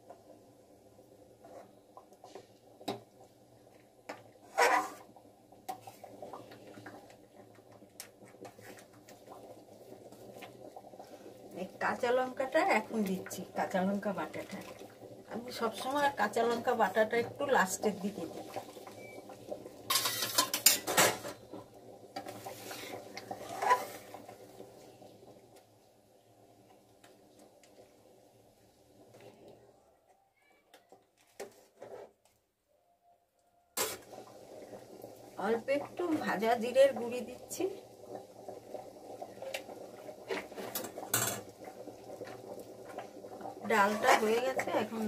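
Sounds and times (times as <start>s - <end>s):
food bubbling and popping: 0.0s - 32.5s, 33.7s - 45.0s
metal ladle scraping metal pan: 4.4s - 5.1s, 19.9s - 21.2s, 22.7s - 24.1s, 33.8s - 34.1s.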